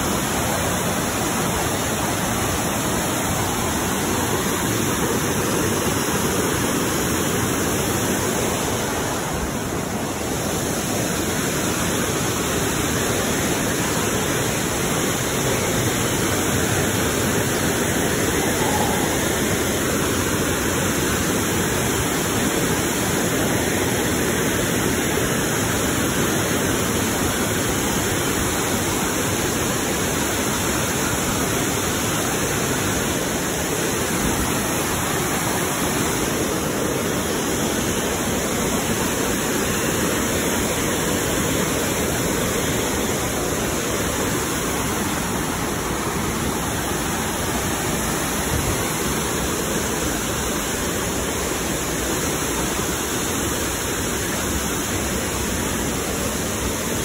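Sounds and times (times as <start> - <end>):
water rushing over rocks: 0.0 - 57.0.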